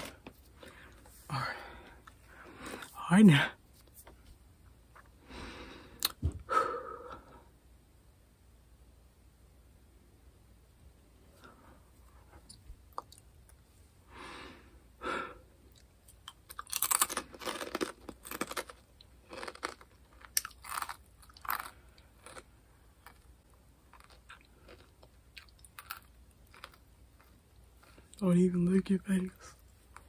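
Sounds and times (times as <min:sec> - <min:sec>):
crunchy chips being chewed: 0:15.7 - 0:28.0.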